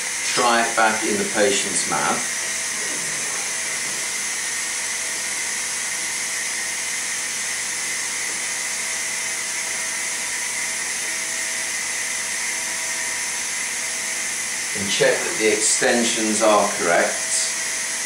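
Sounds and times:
faint high whine: 8.6s - 18.0s.

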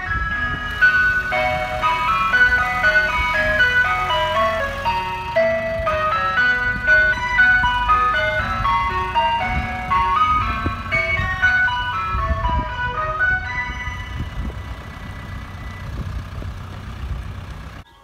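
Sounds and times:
ice cream van chimes: 0.0s - 18.0s
van engine rumble: 0.0s - 18.0s.

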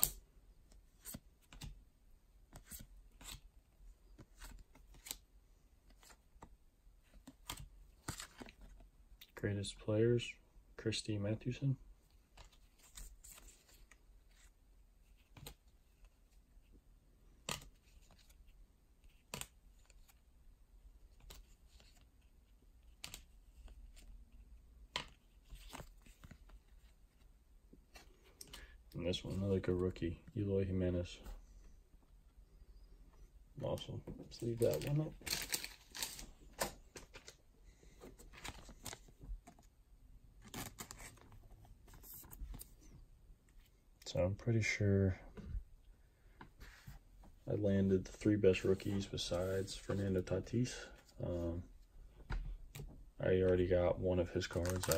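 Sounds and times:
trading cards clicking and rustling: 33.8s - 37.4s, 40.4s - 42.8s, 54.4s - 54.9s.

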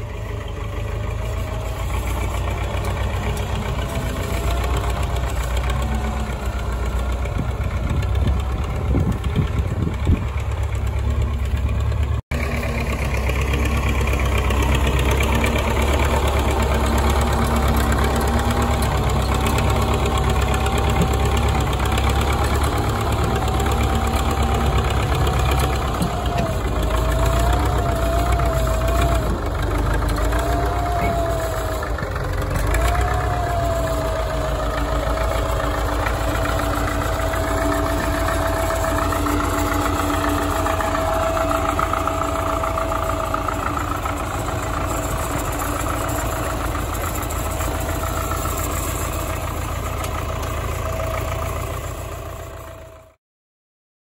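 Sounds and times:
tractor diesel engine rumbling: 0.0s - 53.2s
wavering higher tone: 30.1s - 49.6s.

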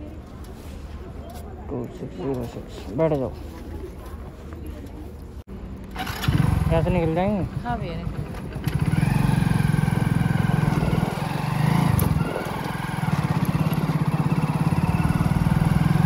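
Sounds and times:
motorcycle engine running: 5.9s - 16.0s.

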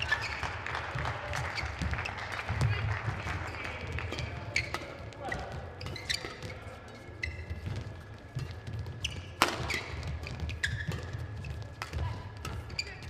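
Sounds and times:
shoe squeaks on court floor: 0.0s - 0.6s, 1.4s - 2.4s, 3.4s - 13.0s
rackets striking shuttlecock: 3.8s - 13.0s.

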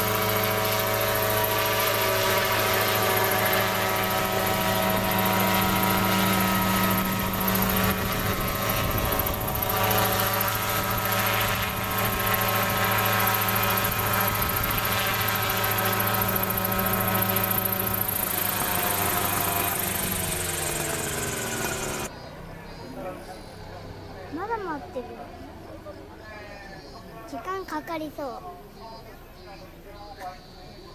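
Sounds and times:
model helicopter hum: 0.0s - 23.5s.

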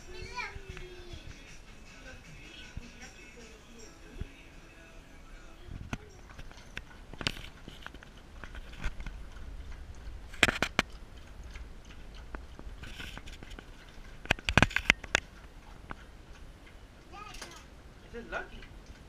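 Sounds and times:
puppy crunching food: 5.7s - 16.8s.

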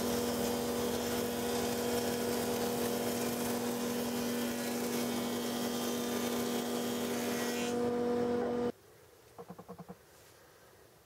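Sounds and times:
thickness planer droning: 0.0s - 8.7s.

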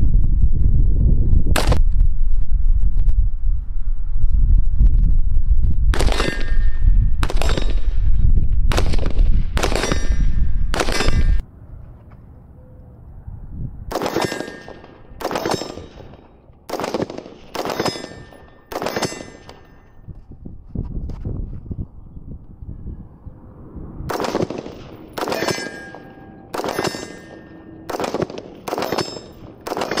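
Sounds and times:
heavy low rumble: 0.0s - 14.0s, 19.9s - 29.7s
rifle shots: 5.9s - 6.6s, 7.2s - 7.9s, 8.7s - 11.4s, 13.9s - 19.8s, 24.1s - 30.0s
steel target plate ringing: 6.2s - 7.8s, 14.1s - 16.4s, 17.6s - 20.0s, 24.8s - 30.0s.

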